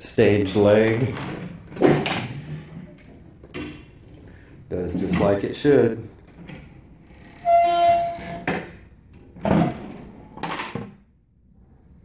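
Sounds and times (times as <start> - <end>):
metal squeal of table leg: 7.1 - 8.8.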